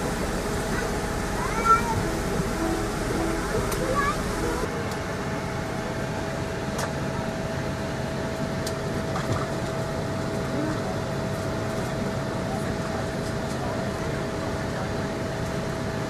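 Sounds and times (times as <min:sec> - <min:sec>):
cabin air-conditioning hum: 0:00.0 - 0:04.7.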